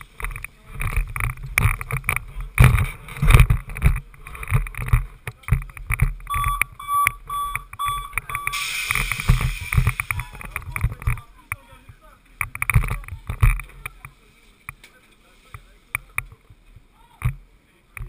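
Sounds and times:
short high electronic beeps: 6.3 - 8.8.

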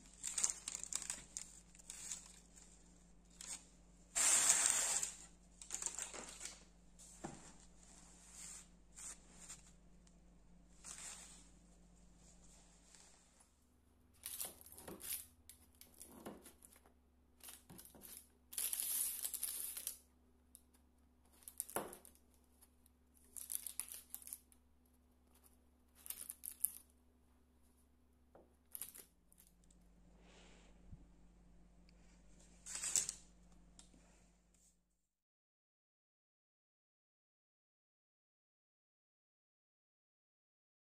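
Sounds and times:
paper crinkling: 0.0 - 9.8, 32.4 - 33.2.

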